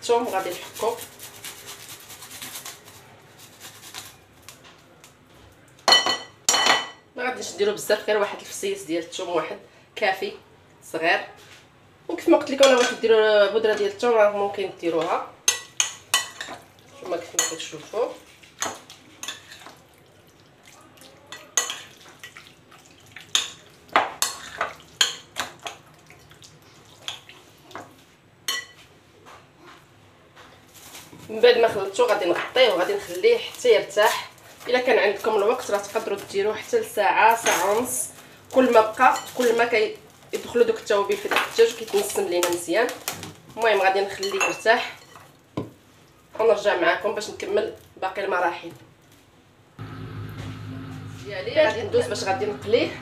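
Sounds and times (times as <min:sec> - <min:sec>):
garlic rasping on a grater: 0:00.2 - 0:04.2.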